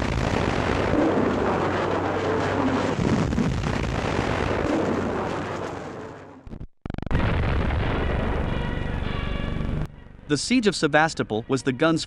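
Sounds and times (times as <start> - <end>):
artillery blast rumble: 0.0 - 6.4, 7.1 - 8.7.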